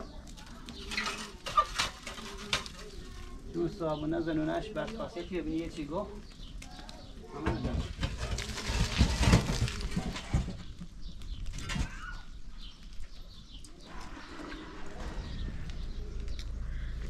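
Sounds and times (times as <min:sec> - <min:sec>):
ladles knocking and scraping pots: 0:00.0 - 0:06.0, 0:07.3 - 0:10.8.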